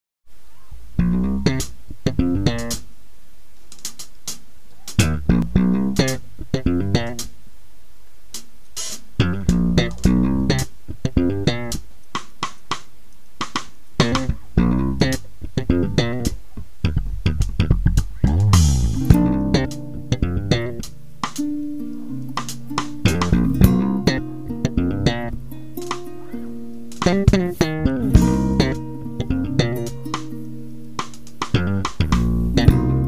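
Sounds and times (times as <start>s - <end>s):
electric bass guitar: 1.0s - 2.8s, 5.0s - 7.3s, 9.2s - 11.8s, 14.0s - 33.0s
drums: 1.5s - 3.0s, 3.6s - 7.4s, 8.2s - 33.0s.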